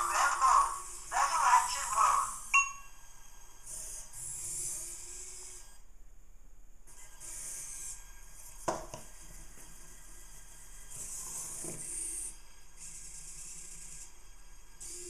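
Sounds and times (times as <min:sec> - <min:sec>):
toy robot servo motors whirring: 0:03.6 - 0:05.8, 0:10.9 - 0:14.2, 0:14.8 - 0:15.0.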